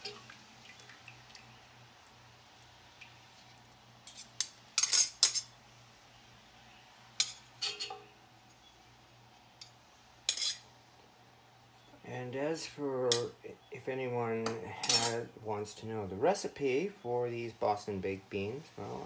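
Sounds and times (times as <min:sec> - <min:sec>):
faint steady hum: 0:00.0 - 0:19.0
metal utensil clanking on cast iron pot: 0:07.2 - 0:08.1, 0:10.3 - 0:10.6.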